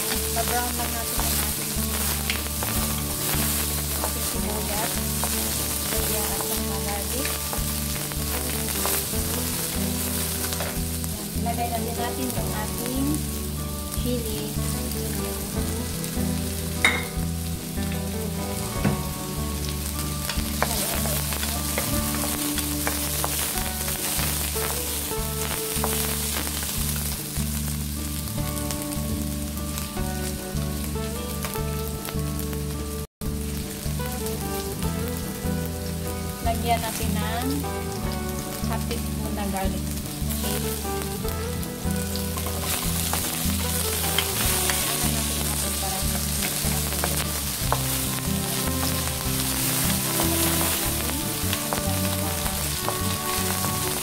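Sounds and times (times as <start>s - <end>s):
onions sizzling in hot oil: 0.0s - 54.0s.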